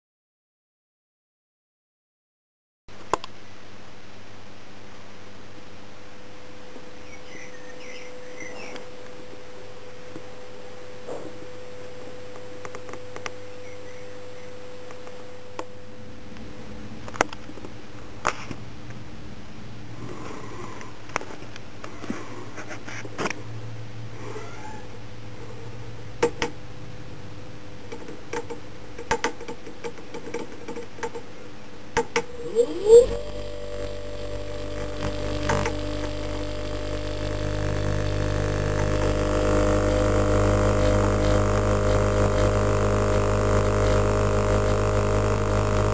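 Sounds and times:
low electrical hum: 0:02.9 - 0:45.9
electric motor whine and hum: 0:32.1 - 0:45.9.

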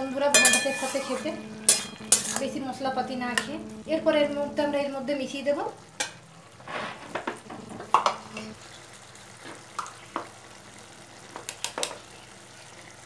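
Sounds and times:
low sizzle: 0:00.0 - 0:13.0
metal spatula scraping a pan: 0:00.3 - 0:02.5.

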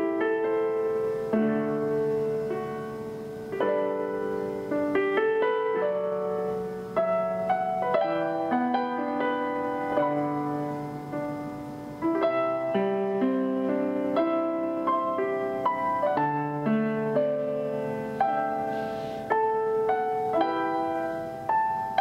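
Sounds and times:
gentle piano music: 0:00.0 - 0:22.0.

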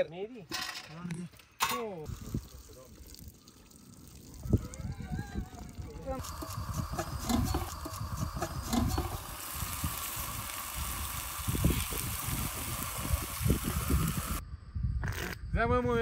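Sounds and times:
water hissing and bubbling: 0:02.1 - 0:14.4
rice poured into water: 0:08.4 - 0:14.4.

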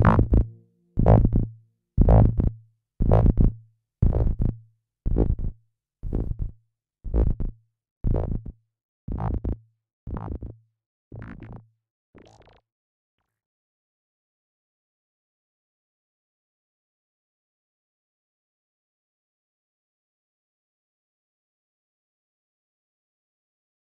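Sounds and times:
stuttering hit with low thump: 0:00.0 - 0:02.4.

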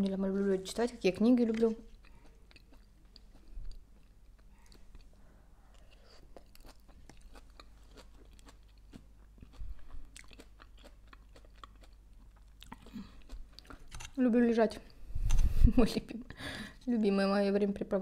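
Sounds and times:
person chewing salad: 0:01.1 - 0:14.2.

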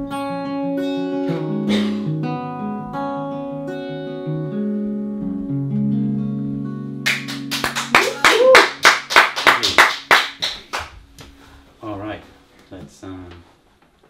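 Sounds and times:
acoustic guitar strumming and picking: 0:00.0 - 0:12.6
hand-clapping: 0:07.1 - 0:11.3.

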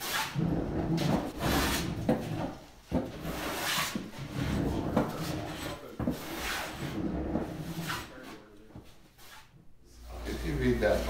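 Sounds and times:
scraping strokes with rumble: 0:00.0 - 0:08.6.

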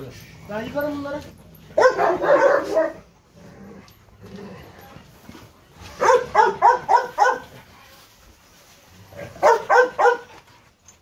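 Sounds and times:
dog barking: 0:01.8 - 0:03.1, 0:06.0 - 0:07.5, 0:09.4 - 0:10.3.

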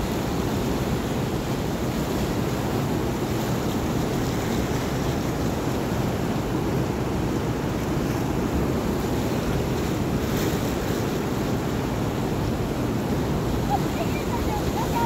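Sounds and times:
wind buffeting microphone: 0:08.2 - 0:15.0
river rapids rushing: 0:08.6 - 0:15.0.

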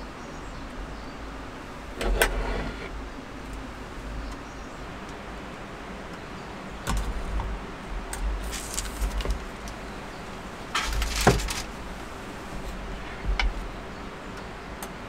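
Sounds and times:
short rustle: 0:08.4 - 0:09.8, 0:10.7 - 0:12.9.

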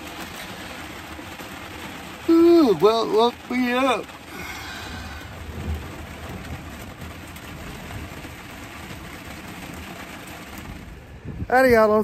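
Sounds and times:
rain on a tent: 0:00.0 - 0:12.0
low thunder rumble: 0:04.3 - 0:12.0.

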